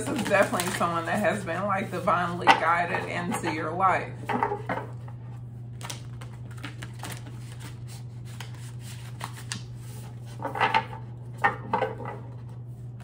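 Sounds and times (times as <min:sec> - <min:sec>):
cards shuffling: 0:00.0 - 0:02.0, 0:05.7 - 0:10.6
low electrical hum: 0:00.0 - 0:13.0.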